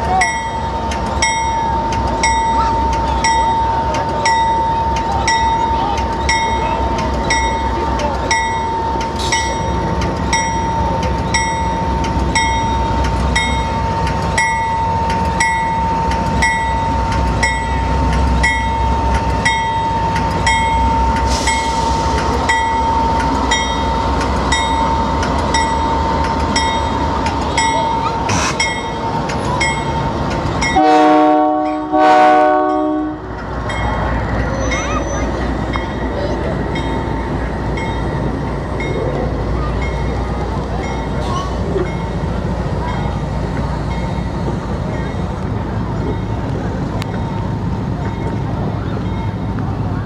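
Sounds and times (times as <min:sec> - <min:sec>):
locomotive bell ringing: 0:00.0 - 0:50.0
locomotive engine rumble: 0:00.0 - 0:50.0
train air horn: 0:30.8 - 0:33.2.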